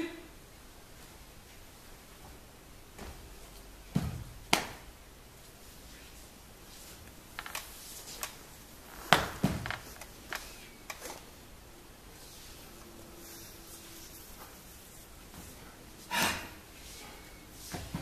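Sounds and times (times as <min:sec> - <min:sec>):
dancers' feet on hard floor: 0:09.0 - 0:10.0.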